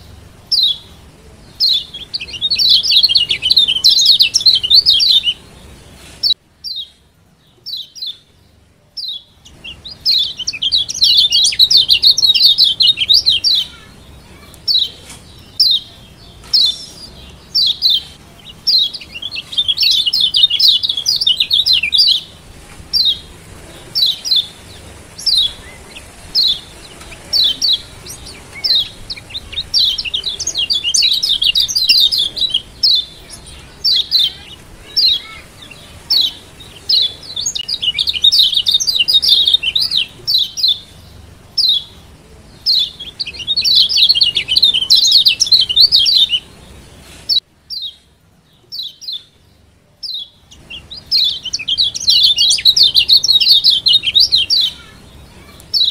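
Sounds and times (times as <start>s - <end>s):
bird sharp high chirps: 1.5s - 7.0s, 9.0s - 41.0s, 42.6s - 46.5s, 50.0s - 55.9s
bird fast twittering: 23.9s - 40.8s.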